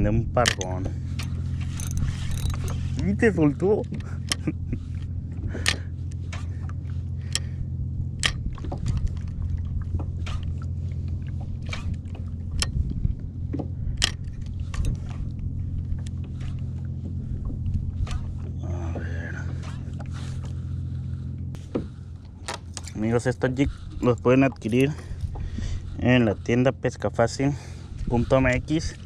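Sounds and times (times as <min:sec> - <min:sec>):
low engine hum: 0:00.0 - 0:29.0
sharp clicks and knocks: 0:00.4 - 0:02.8, 0:03.8 - 0:06.5, 0:08.2 - 0:09.3, 0:11.6 - 0:15.2.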